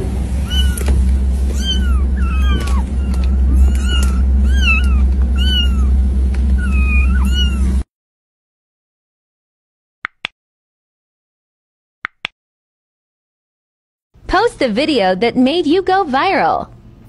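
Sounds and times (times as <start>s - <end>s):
steady low rumble: 0.0s - 7.8s
kittens mewing: 0.4s - 7.8s.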